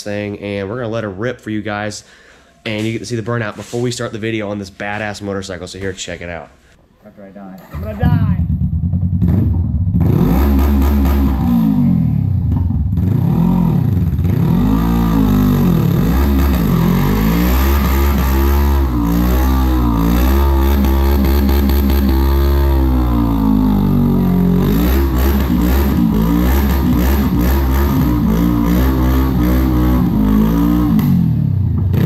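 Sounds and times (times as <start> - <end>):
motorcycle engine revving: 7.6 - 32.0.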